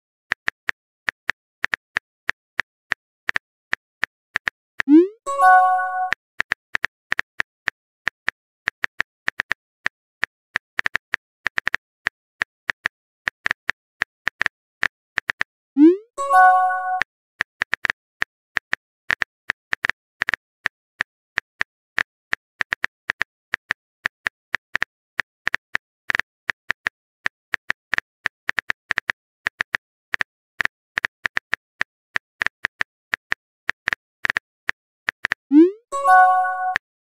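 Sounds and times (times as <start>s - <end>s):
phone keyboard typing clicks: 4.4s - 6.9s, 16.2s - 17.9s.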